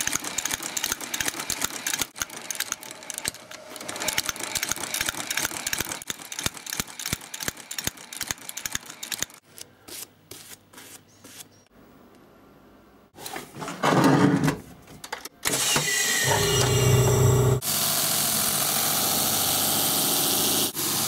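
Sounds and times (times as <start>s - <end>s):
stitching machine clattering: 0.0s - 9.4s.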